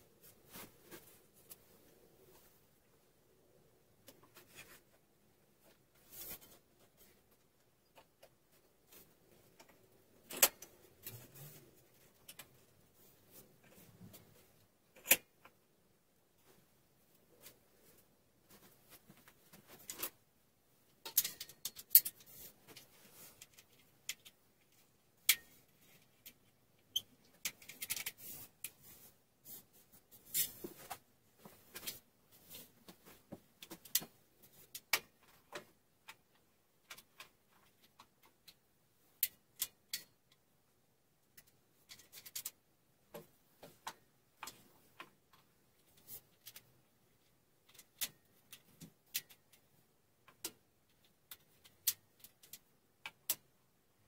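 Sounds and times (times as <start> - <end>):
metal clamps clicking and knocking: 21.0 - 22.3.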